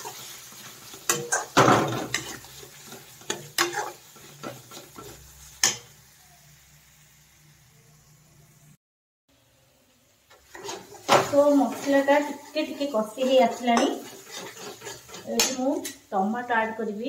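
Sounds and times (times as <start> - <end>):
spatula scraping metal pan: 0.0 - 5.9, 10.4 - 15.9
onions sizzling in oil: 0.0 - 17.0.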